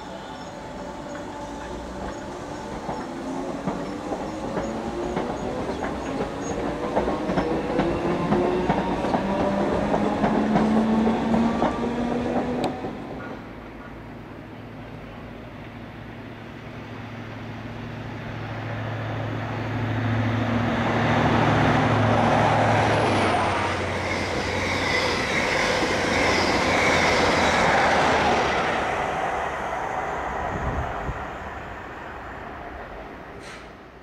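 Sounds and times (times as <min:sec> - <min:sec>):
diesel locomotive hum: 0:00.0 - 0:34.0
train coaches rumbling on rails: 0:00.0 - 0:34.0
wheel-on-rail whine: 0:00.0 - 0:34.0.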